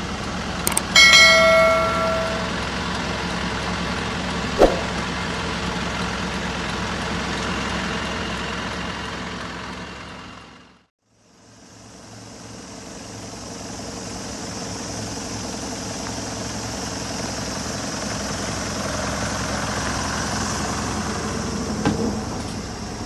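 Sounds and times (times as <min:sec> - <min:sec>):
sharp knock: 0:04.6 - 0:05.0.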